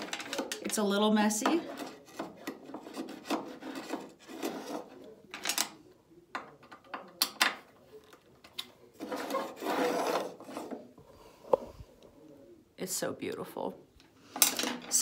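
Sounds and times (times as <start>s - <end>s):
metal level sliding on wood: 0.0s - 5.1s, 9.0s - 10.9s.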